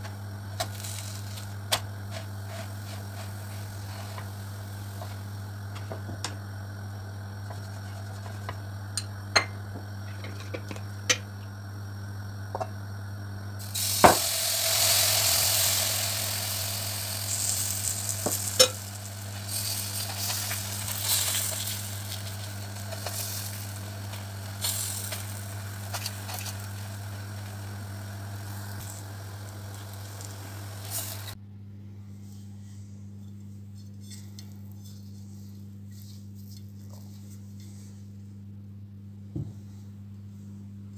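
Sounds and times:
batter sizzling in frying pan: 0.0s - 11.3s, 12.5s - 31.4s
steady low hum: 0.0s - 40.9s.

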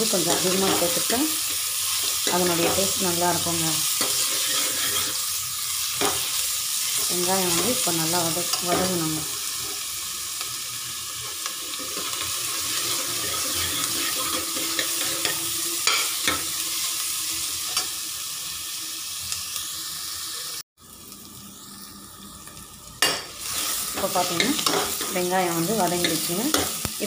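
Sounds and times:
onions sizzling in hot oil: 0.0s - 27.0s
steel ladle scraping pot: 4.0s - 5.3s, 11.7s - 16.4s.

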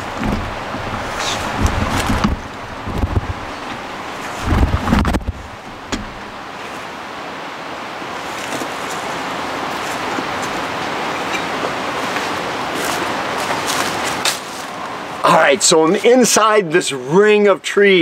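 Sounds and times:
wind rushing: 0.0s - 6.6s
wind buffeting microphone: 0.0s - 14.3s.

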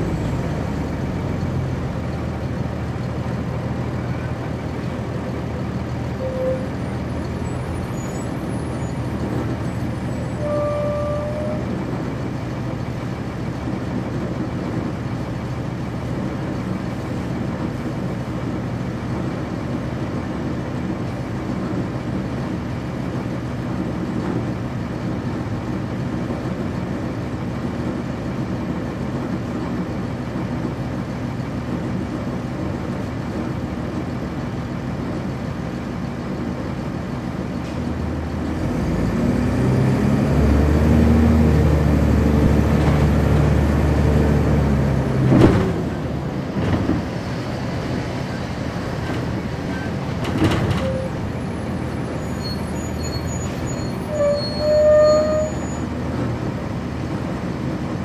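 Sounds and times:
bus diesel engine running: 0.0s - 58.0s
short beeps: 6.2s - 6.7s.

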